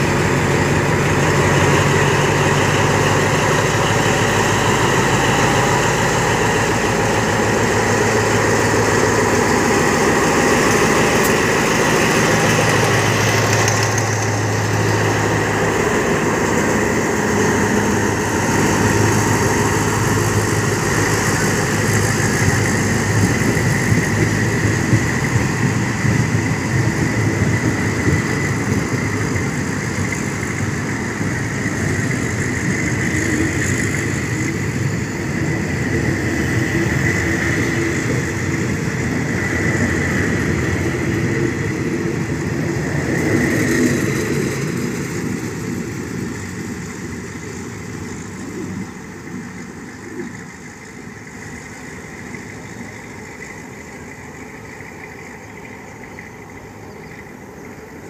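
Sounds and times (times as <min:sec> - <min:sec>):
locomotive engine droning: 0:00.0 - 0:58.0
train coaches rolling on rails: 0:00.0 - 0:58.0.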